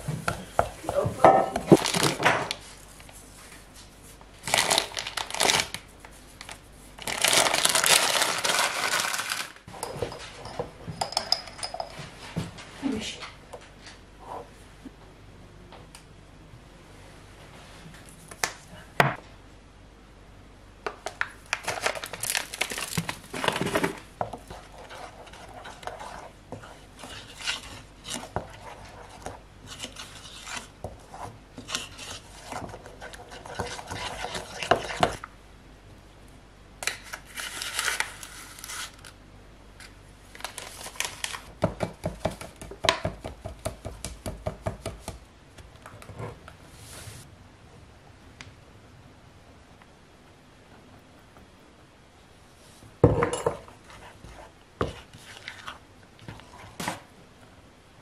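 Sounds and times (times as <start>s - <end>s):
paper bag crinkling: 4.4s - 5.8s, 6.4s - 9.6s, 21.5s - 24.0s, 40.3s - 41.5s
wooden spoon scraping a bowl: 24.2s - 35.2s, 53.6s - 57.0s.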